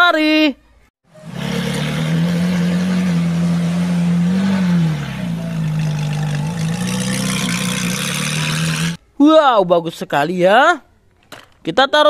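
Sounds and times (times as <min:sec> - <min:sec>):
car engine idling and revving: 0:01.1 - 0:09.0.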